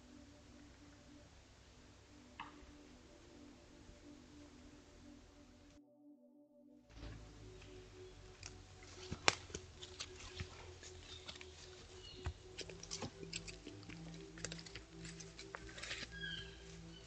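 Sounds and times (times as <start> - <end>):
low hum of tones: 0.0 - 17.0
hooves and stems snapping: 8.3 - 17.0.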